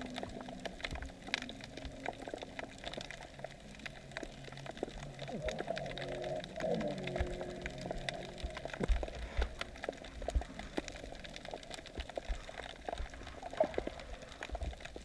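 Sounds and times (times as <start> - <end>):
underwater crackle of clicks: 0.0 - 15.0
low droning hum: 3.6 - 11.2.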